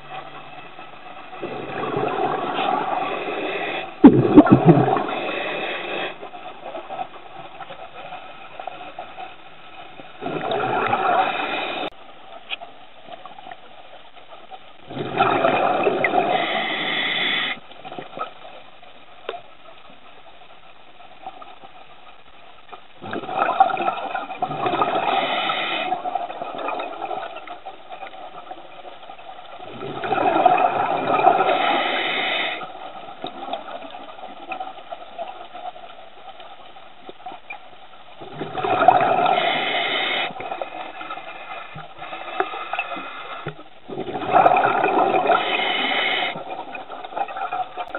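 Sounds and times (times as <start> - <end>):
underwater exhaled bubbles: 0.0 - 7.9, 10.0 - 12.0, 14.8 - 18.3, 23.0 - 28.6, 29.5 - 35.5, 38.2 - 47.9.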